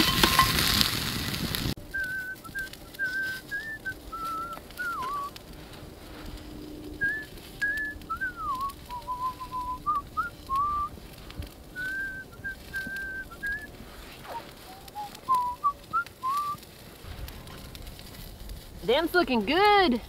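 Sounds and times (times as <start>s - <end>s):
person whistling a tune: 1.9s - 5.3s, 7.0s - 10.9s, 11.8s - 13.7s, 14.3s - 16.6s.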